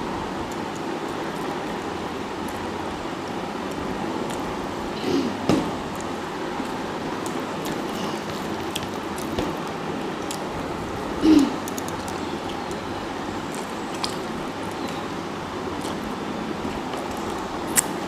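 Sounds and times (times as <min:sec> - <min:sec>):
steady background hiss: 0:00.0 - 0:18.0
chewing: 0:05.9 - 0:10.5, 0:11.5 - 0:15.0, 0:15.8 - 0:18.0
fingers squishing rice and curry: 0:05.9 - 0:10.6.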